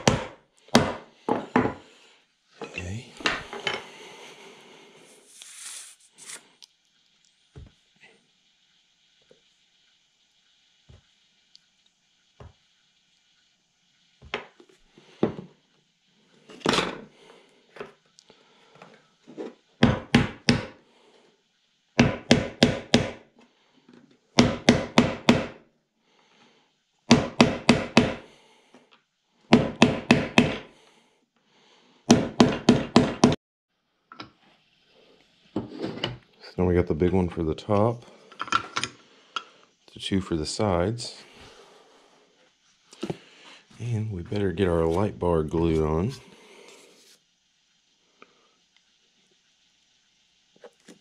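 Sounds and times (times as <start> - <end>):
hammer tapping wood: 0.0 - 1.8, 19.8 - 20.8, 22.0 - 23.2, 24.4 - 25.6, 27.1 - 28.2, 29.5 - 30.7, 32.1 - 33.4.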